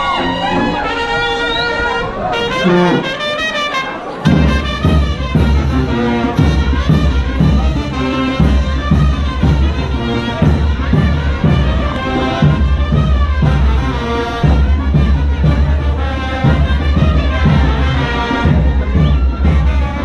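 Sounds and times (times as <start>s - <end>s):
brass band playing dance music: 0.0s - 20.0s
bass drum beat: 4.3s - 20.0s.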